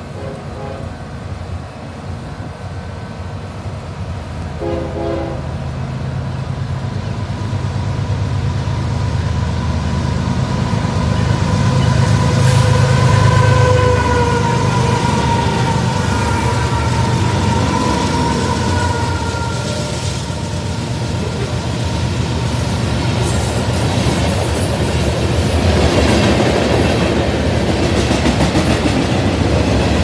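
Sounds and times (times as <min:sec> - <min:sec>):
train horn notes: 0:00.0 - 0:01.0, 0:04.6 - 0:05.6, 0:11.7 - 0:20.6
locomotive engine rumble: 0:00.0 - 0:26.7.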